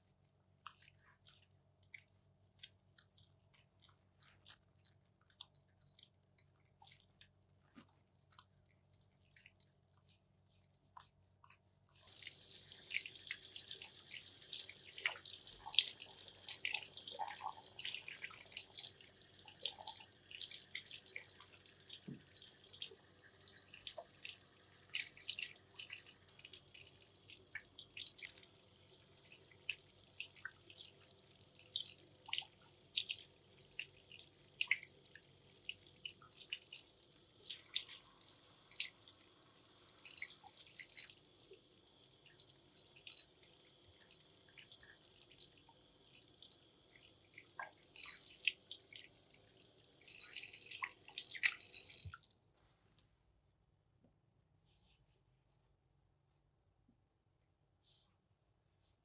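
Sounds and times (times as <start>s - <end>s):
water splashing and dripping: 12.1s - 52.2s
tap water running into basin: 12.1s - 52.3s.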